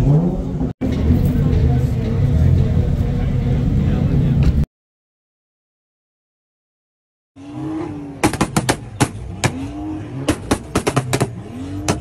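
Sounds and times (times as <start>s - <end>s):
sharp bangs: 8.2s - 12.0s.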